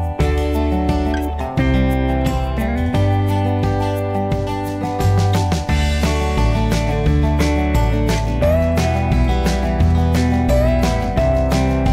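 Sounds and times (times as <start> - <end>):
background music with steady beat: 0.0 - 11.9.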